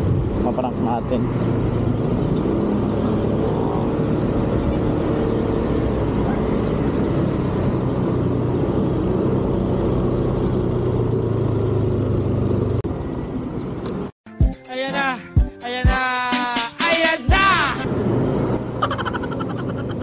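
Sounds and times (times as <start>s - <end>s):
road noise: 0.0s - 14.2s, 16.5s - 20.0s
motor scooter engine humming: 1.4s - 14.1s.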